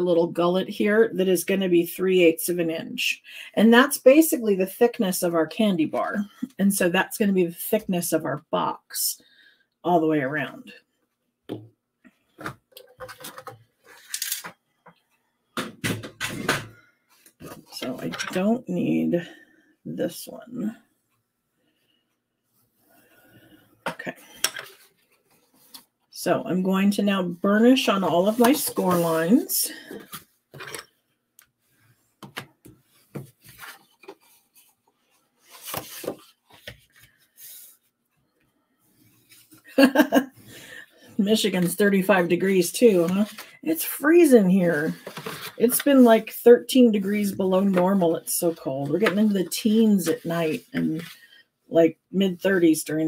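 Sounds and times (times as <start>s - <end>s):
cardstock rustling and sliding: 28.2s - 30.2s, 35.4s - 37.8s, 42.9s - 43.5s, 44.8s - 46.1s
card rustling and crinkling: 32.0s - 37.9s, 42.9s - 43.6s, 44.9s - 46.1s.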